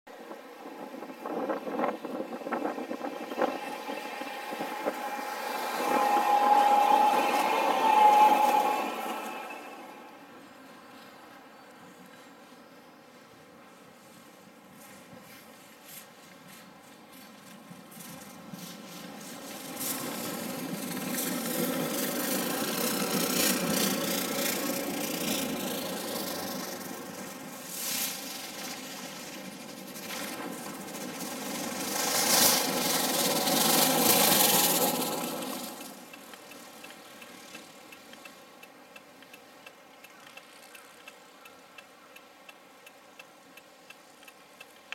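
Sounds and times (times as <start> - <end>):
tram rumbling along tracks: 0.1 - 12.4, 16.4 - 37.9
snow-plow tram brooms sweeping snow: 0.1 - 39.5
light regular ticking: 35.1 - 44.9.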